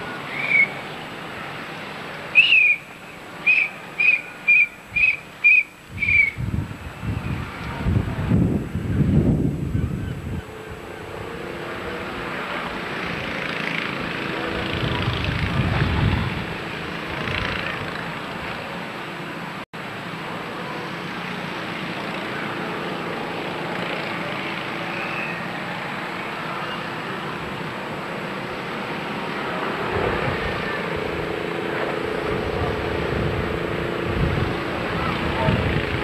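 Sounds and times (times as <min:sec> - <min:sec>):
steady rushing outdoor noise: 0:00.0 - 0:36.0
wind buffeting microphone: 0:05.8 - 0:18.8, 0:28.4 - 0:36.0.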